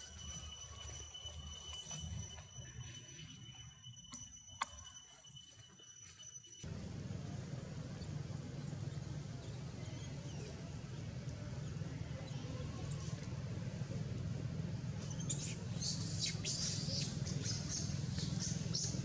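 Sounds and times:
low outdoor rumble: 6.6 - 19.0.

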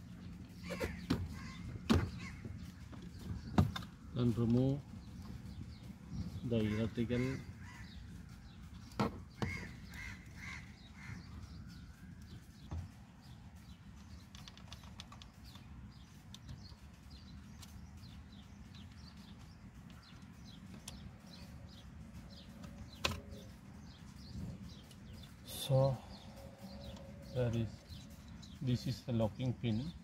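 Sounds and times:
birds chirping: 0.0 - 30.0.

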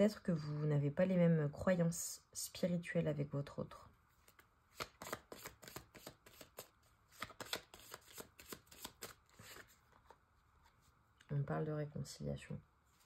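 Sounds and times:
cards being shuffled: 4.2 - 10.8.

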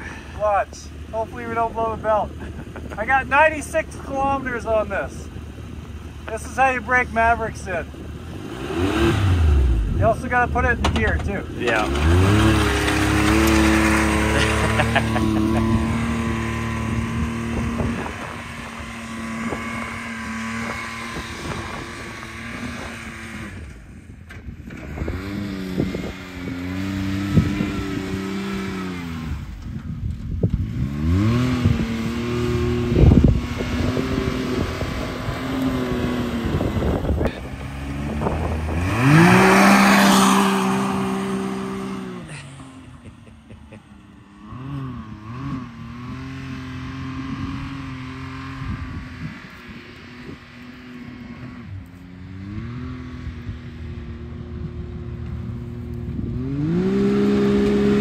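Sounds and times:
engine revving hard: 8.3 - 10.7, 11.6 - 23.7, 24.8 - 29.5, 30.6 - 42.9, 44.4 - 49.4, 56.2 - 58.0.

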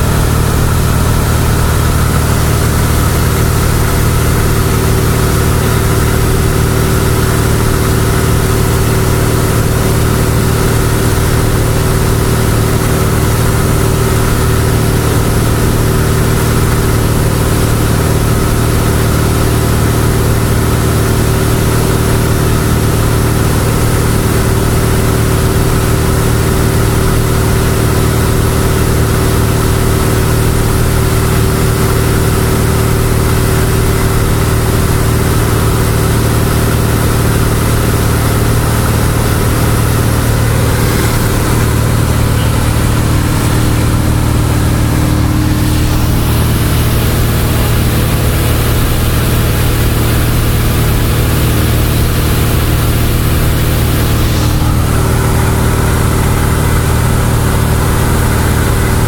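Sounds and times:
propeller plane engine droning: 0.0 - 59.0
rushing air noise: 36.1 - 58.7.

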